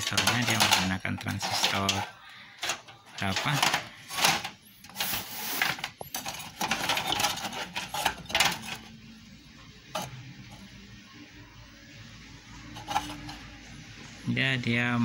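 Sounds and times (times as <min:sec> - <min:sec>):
hands rubbing and scraping metal: 0:00.0 - 0:08.9, 0:12.8 - 0:13.5.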